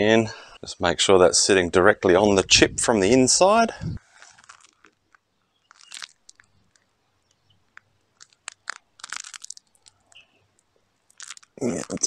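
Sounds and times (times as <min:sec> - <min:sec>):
plastic clicks and crackles: 0:04.1 - 0:12.0.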